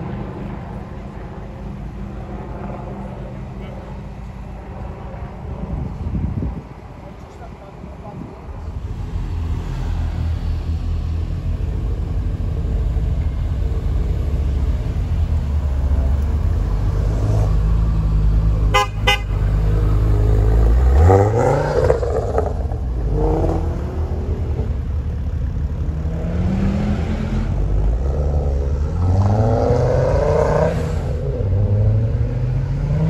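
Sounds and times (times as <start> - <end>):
car engines rumbling: 0.0 - 33.0
engine revving: 8.7 - 33.0
car horn tooting: 18.7 - 19.5.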